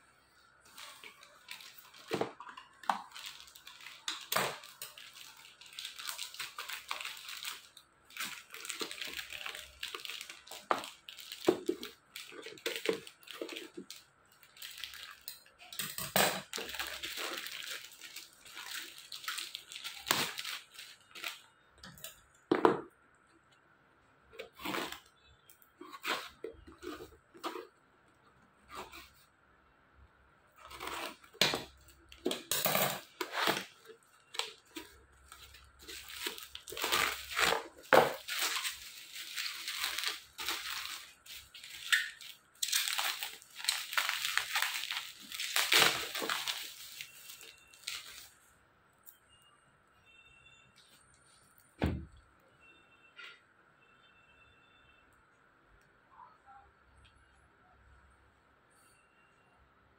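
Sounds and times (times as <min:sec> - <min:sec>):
bubble wrap crinkling: 0:00.6 - 0:22.2, 0:24.3 - 0:27.8, 0:30.6 - 0:48.4.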